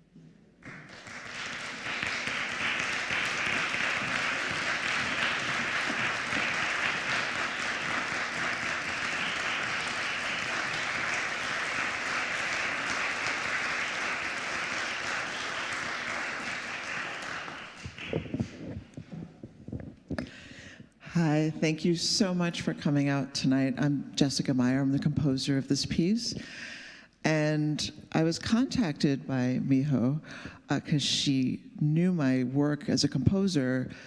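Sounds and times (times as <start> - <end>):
audience applause: 0.6 - 19.0.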